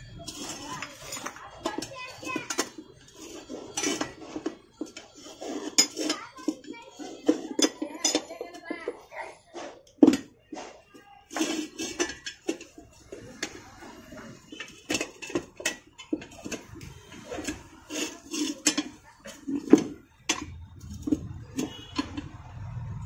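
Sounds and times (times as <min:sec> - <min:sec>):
tyre lever scraping metal rim: 0:11.3 - 0:22.4.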